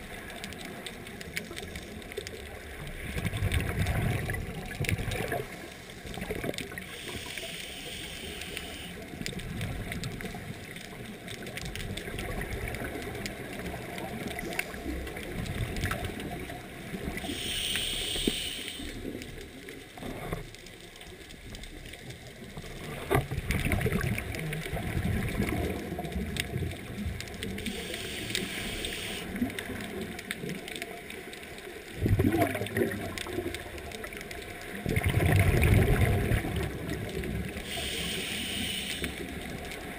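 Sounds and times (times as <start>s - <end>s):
exhaled air bubbling: 0.0s - 20.3s, 22.6s - 30.7s, 31.8s - 39.9s
regulator hissing inhales: 6.9s - 9.0s, 17.2s - 19.0s, 27.7s - 29.3s, 37.6s - 39.3s.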